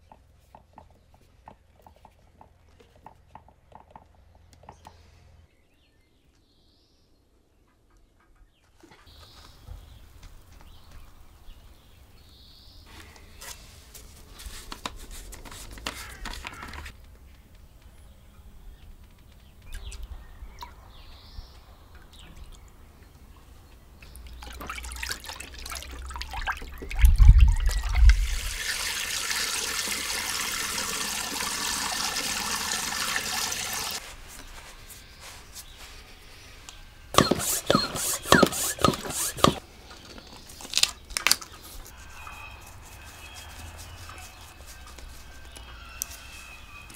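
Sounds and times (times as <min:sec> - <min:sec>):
liquid pouring into tank: 0:24.4 - 0:34.0.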